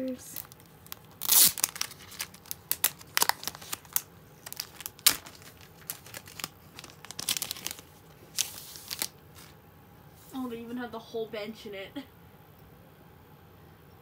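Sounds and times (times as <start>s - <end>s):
sticker sheet crinkling: 0.0s - 9.6s.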